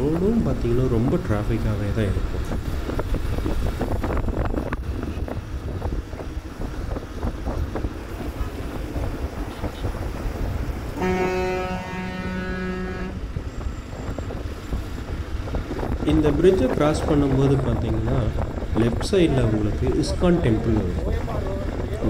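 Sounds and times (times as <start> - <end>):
road rumble: 0.0 - 22.0
wind buffeting microphone: 0.0 - 22.0
vehicle horn: 11.0 - 13.5.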